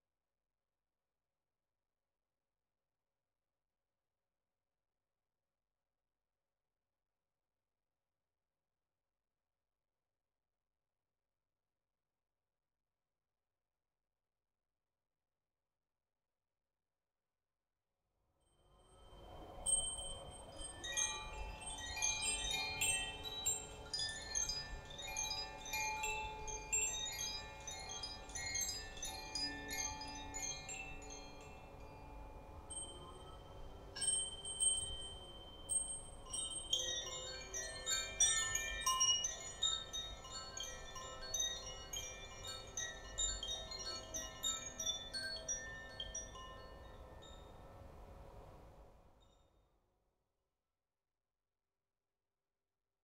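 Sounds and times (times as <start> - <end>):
high bell-like chime tinkles: 19.6 - 47.7.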